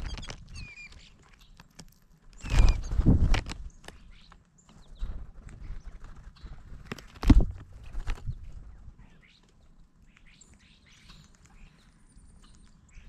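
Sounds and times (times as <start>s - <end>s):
bird wings fluttering: 0.0s - 1.0s, 2.4s - 4.2s, 4.8s - 8.8s.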